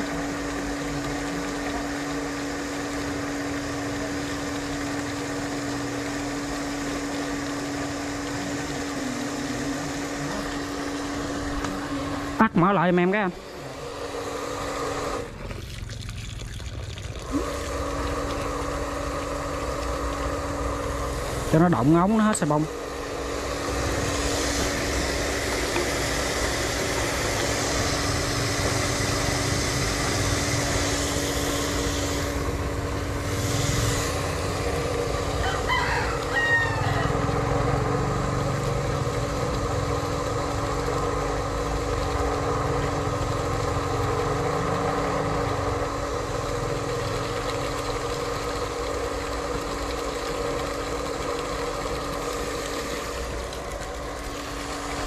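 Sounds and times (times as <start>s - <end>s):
well pump motor hum: 0.0s - 55.0s
rooster crowing: 35.4s - 37.5s.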